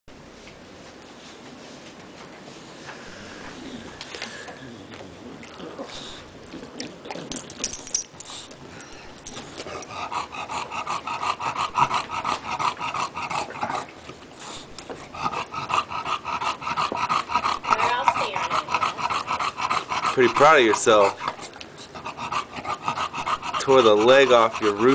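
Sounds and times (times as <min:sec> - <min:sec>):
dog chewing a toy: 0:02.9 - 0:24.9
dog panting: 0:07.3 - 0:24.9.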